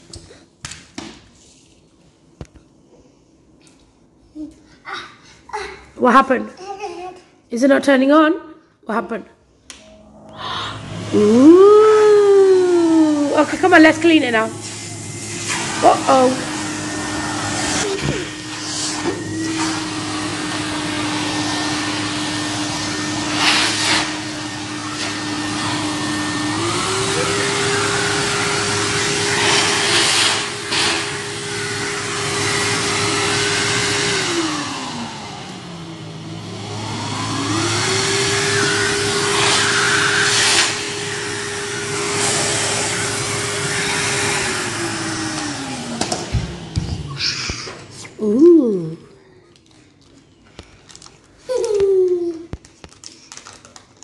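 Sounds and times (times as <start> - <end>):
vacuum cleaner motor running: 10.1 - 49.0.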